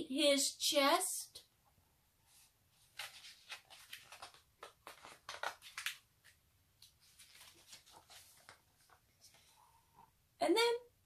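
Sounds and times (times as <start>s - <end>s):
paper page rustling: 2.4s - 9.6s.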